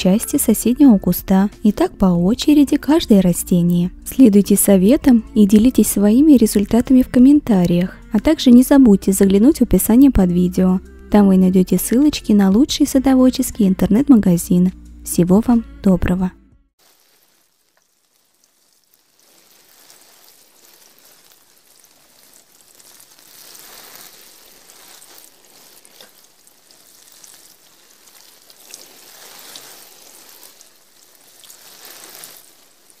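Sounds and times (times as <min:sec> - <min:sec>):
rain falling: 0:16.8 - 0:33.0.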